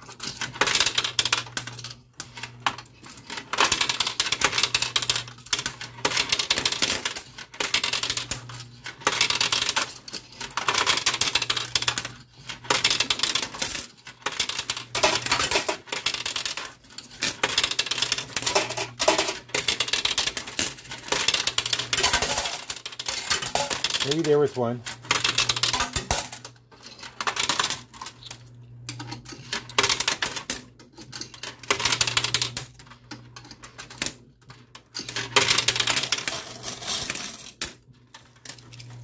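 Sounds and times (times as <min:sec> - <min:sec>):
coins clattering: 0:00.0 - 0:34.2, 0:34.9 - 0:39.0
low machine hum: 0:14.6 - 0:29.8.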